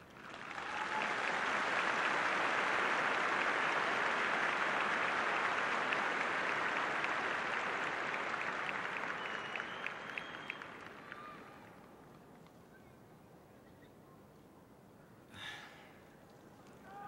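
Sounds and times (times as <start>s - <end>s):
stadium crowd applauding: 0.0s - 12.3s.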